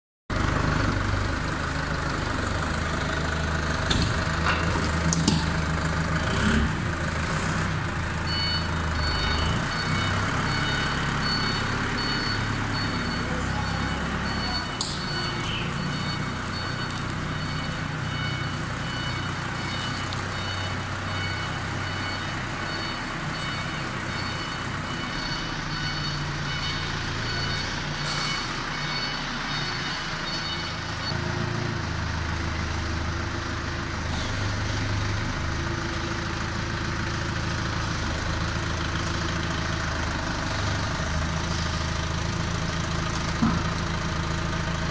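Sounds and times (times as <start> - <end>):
forklift engine running: 0.3 - 44.9
high electronic warning tone: 8.4 - 31.2.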